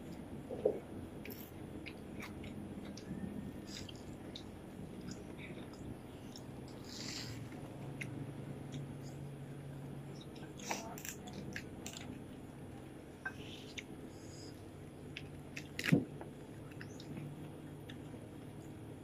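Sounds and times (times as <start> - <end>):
chewing and crunching: 0.0 - 19.0.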